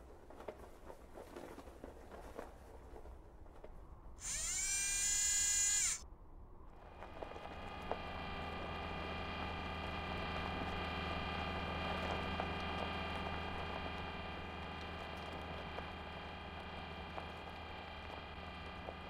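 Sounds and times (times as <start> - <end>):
droning hum of held tones: 4.2 - 19.0.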